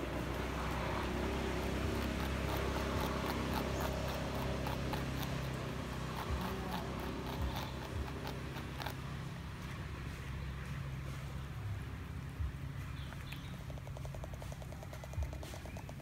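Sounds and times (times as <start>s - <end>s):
porcupine crunching cabbage: 0.0s - 11.1s.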